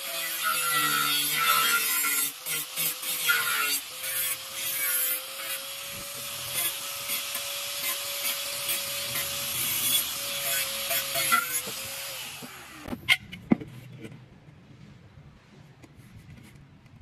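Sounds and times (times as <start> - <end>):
angle grinder cutting steel: 0.0 - 13.2.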